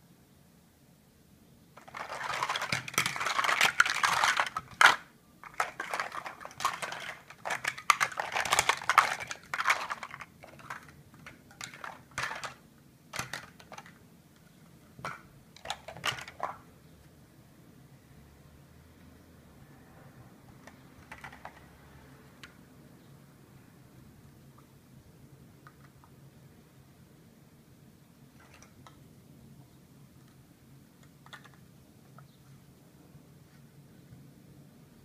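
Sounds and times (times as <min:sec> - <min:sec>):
plastic blocks clattering: 0:01.8 - 0:14.0, 0:15.0 - 0:16.7, 0:20.6 - 0:21.7.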